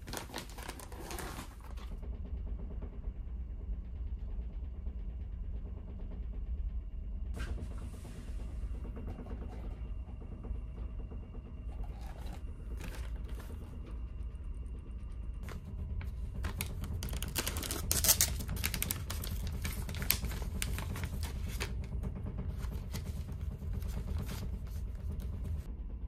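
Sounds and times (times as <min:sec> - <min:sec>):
low hum of ship engines: 0:00.0 - 0:26.0
coffee sachet crinkling: 0:16.5 - 0:21.2.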